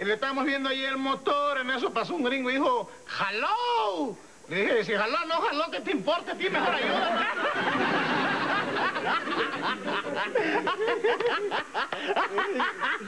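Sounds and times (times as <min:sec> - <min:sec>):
audience laughing: 0:06.4 - 0:13.0.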